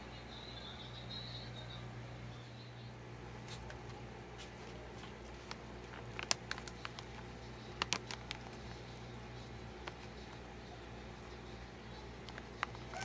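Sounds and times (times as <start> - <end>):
plastic bag crinkling: 4.6 - 9.0, 12.2 - 13.0.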